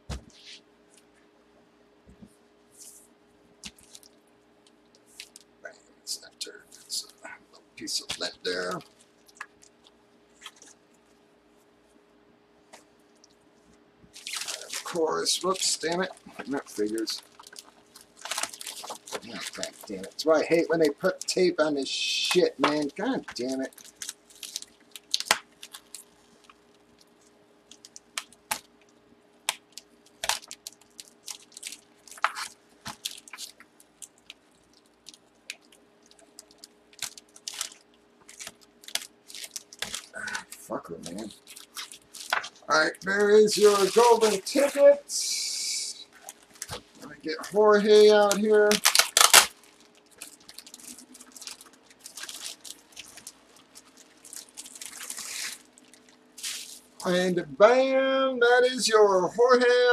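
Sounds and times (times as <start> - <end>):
wrapping rustling and crinkling: 2.8 - 5.6, 7.8 - 11.3, 13.4 - 45.4, 46.1 - 57.2
tape peeling off packaging: 22.2 - 26.6, 41.0 - 44.8, 48.1 - 56.9.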